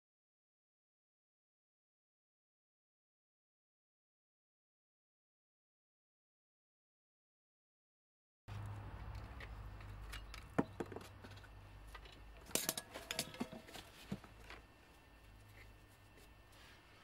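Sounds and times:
low steady hum: 0:08.5 - 0:17.0.

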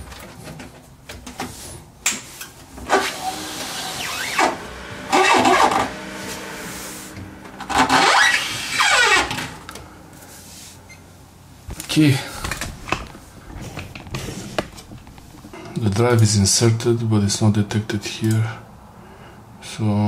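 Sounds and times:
steady hum: 0:02.6 - 0:16.6
computer fans spinning up: 0:02.7 - 0:10.2, 0:11.6 - 0:15.6
rising and falling whine: 0:03.2 - 0:10.1.

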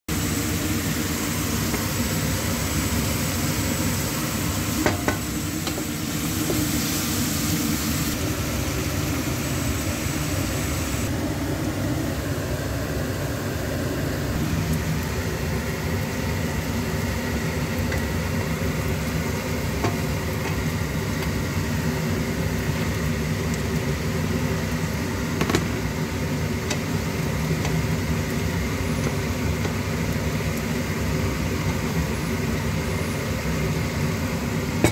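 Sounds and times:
onions sizzling in oil: 0:00.1 - 0:34.9
spatula tapping pan: 0:04.8 - 0:05.9.

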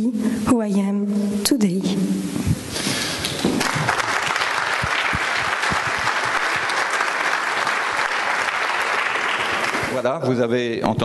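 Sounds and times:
audience applauding: 0:03.2 - 0:10.2.

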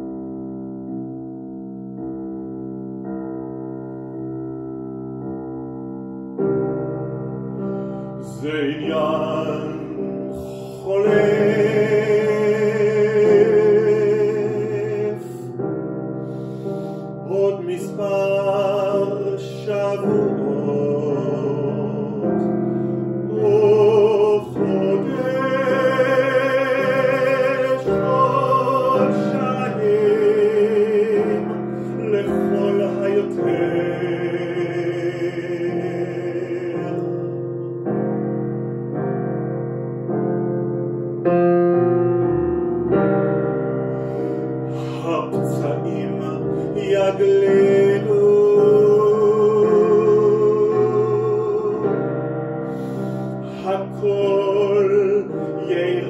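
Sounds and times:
grand piano: 0:00.0 - 0:56.0
man singing with vibrato: 0:08.1 - 0:15.6, 0:16.3 - 0:37.4, 0:44.0 - 0:56.0.

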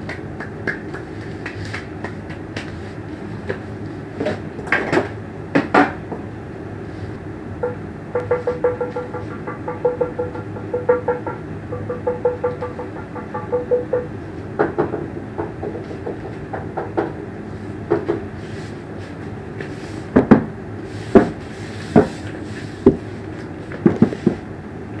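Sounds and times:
steady low background noise: 0:00.0 - 0:25.0
sharp knocks and clicks: 0:07.6 - 0:17.2.

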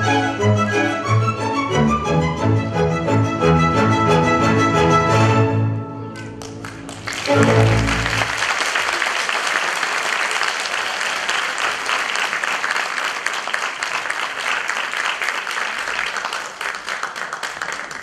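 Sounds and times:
orchestral music final chord: 0:01.8 - 0:08.4
audience applauding: 0:06.1 - 0:18.0.

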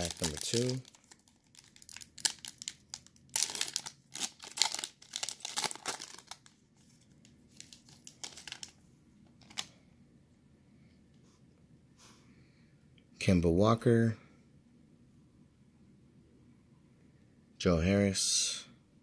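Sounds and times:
foil wrapper crinkling: 0:00.0 - 0:08.8, 0:09.4 - 0:09.7.

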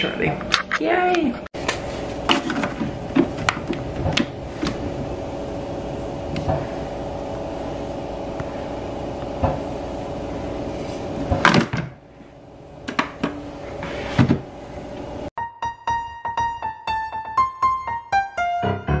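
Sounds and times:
coffee machine pump humming: 0:01.6 - 0:15.2.

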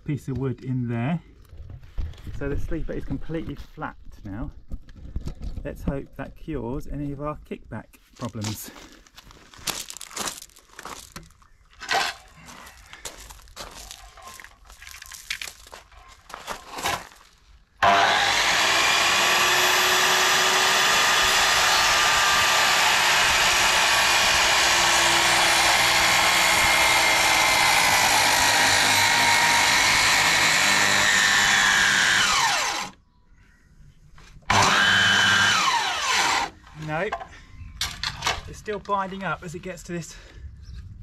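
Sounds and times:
circular saw cutting timber: 0:17.8 - 0:33.0, 0:34.5 - 0:37.0.

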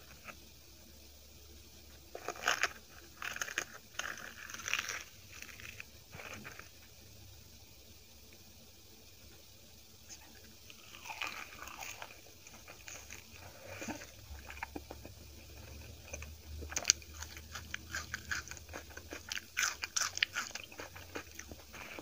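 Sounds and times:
person chewing food: 0:02.1 - 0:06.7, 0:10.7 - 0:22.0.

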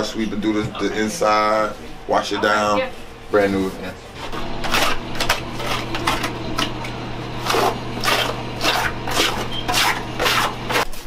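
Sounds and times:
scrub brush scratching bathtub: 0:07.3 - 0:11.0.

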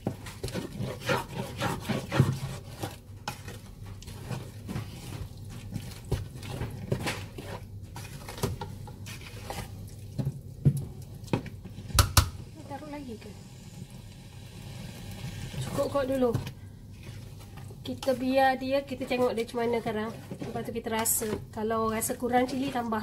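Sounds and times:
spatula scraping paste in pot: 0:00.0 - 0:10.0, 0:17.0 - 0:21.5.

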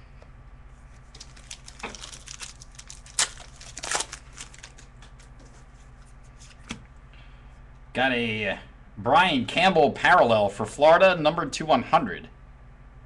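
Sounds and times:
wrappers crinkling and tearing: 0:01.0 - 0:05.4.

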